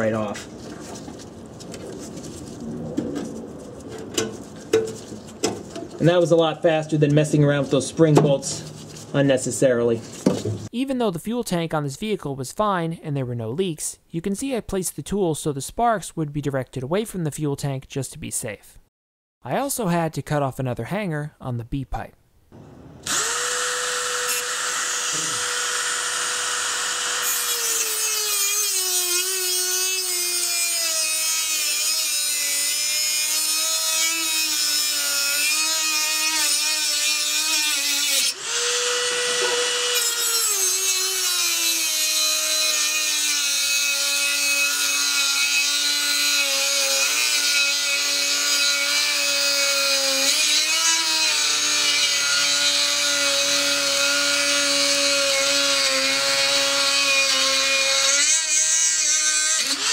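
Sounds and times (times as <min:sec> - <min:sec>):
rotary tool cutting metal: 0:23.0 - 0:59.9.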